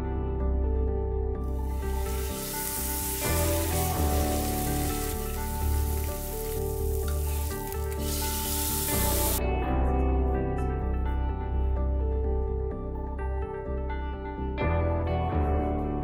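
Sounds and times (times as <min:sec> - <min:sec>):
soft background music: 0:00.0 - 0:16.0
steak sizzling in frying pan: 0:01.6 - 0:09.4.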